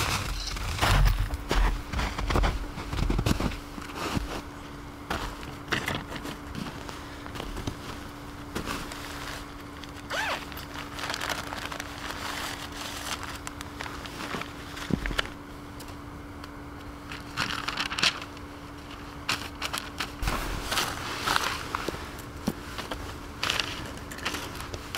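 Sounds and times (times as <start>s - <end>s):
faint steady hum: 0.0s - 24.9s
paper and gear rustling: 8.6s - 15.3s, 17.1s - 24.9s
boots crunching on snow: 20.2s - 23.0s.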